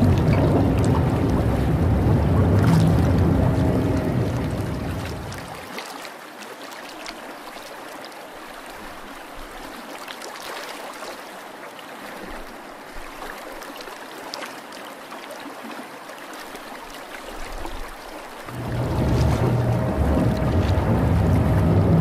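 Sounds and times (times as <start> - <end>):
water trickling and fizzing: 0.0 - 22.0.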